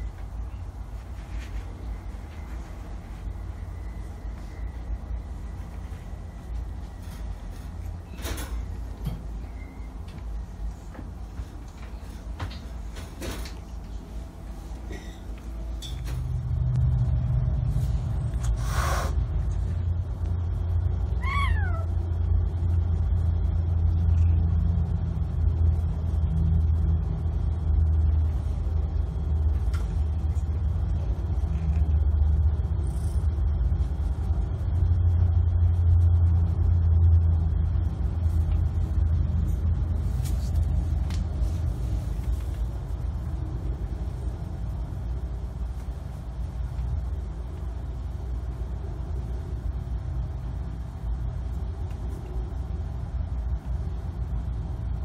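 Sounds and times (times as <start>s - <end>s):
cat meowing: 21.1s - 22.0s.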